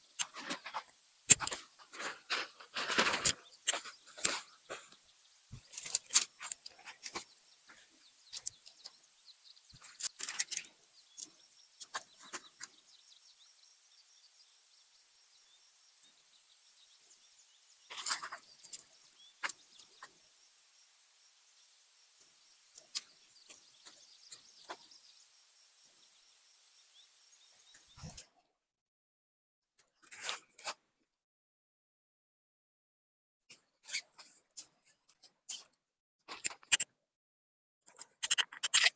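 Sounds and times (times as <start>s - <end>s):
faint high hiss: 0.0s - 28.2s
tent poles clicking together: 0.2s - 9.0s, 9.8s - 12.7s, 36.3s - 36.9s, 37.9s - 38.9s
tent fabric rustling: 1.5s - 4.9s.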